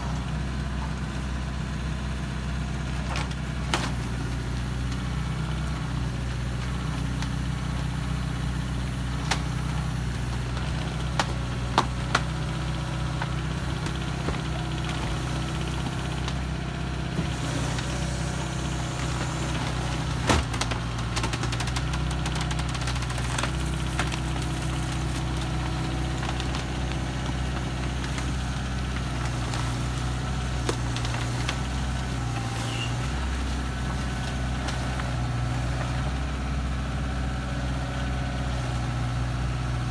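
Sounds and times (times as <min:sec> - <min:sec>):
excavator diesel engine: 0:00.0 - 0:39.9.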